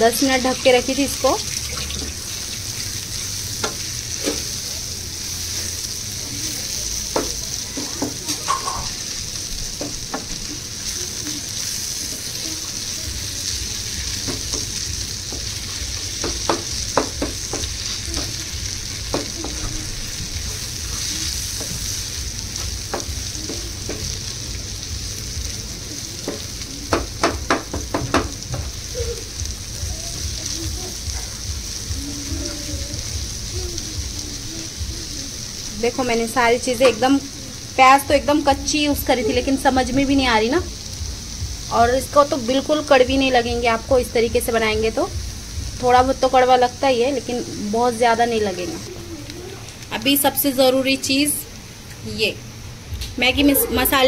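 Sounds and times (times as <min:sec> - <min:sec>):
curry sizzling in a pan: 0:00.0 - 0:54.0.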